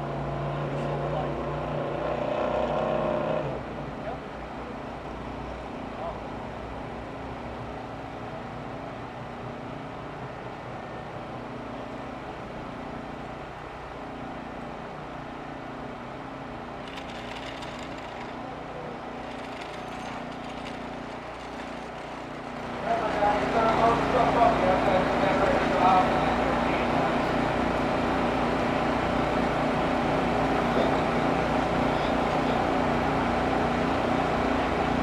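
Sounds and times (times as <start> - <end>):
engine running at low revs: 16.4 - 35.0.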